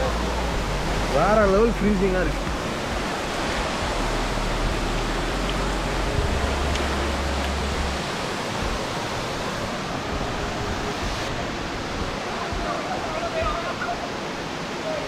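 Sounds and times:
waterfall rushing: 0.0 - 15.0
low rumble: 3.8 - 8.8.

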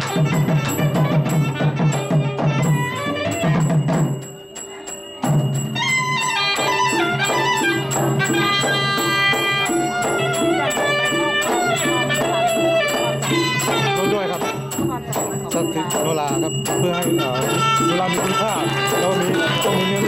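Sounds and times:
drums and clappers rhythm: 0.0 - 20.0
wavering bending melody: 0.0 - 20.0.

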